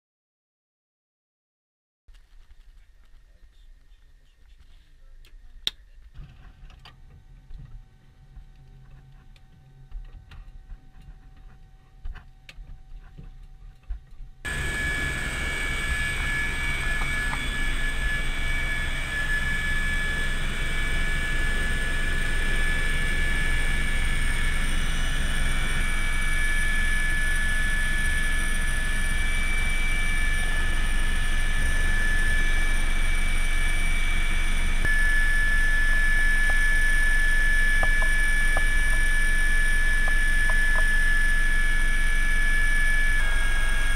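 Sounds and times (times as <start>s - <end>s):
helicopter turbine whine and rotor: 14.5s - 43.9s.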